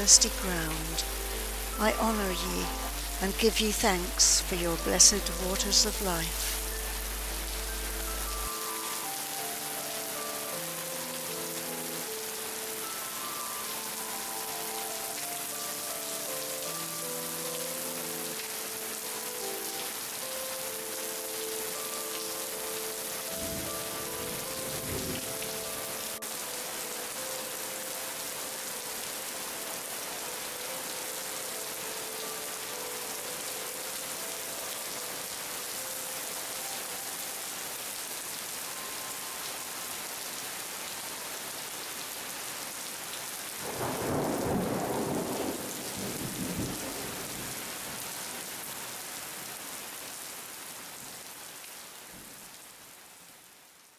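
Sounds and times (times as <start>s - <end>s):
heavy rain falling: 0.0s - 53.9s
low roll of thunder: 43.6s - 47.6s.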